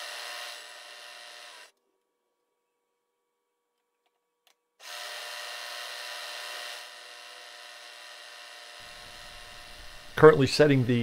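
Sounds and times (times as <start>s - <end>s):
milling machine cutting metal: 0.0s - 1.7s, 4.8s - 11.0s.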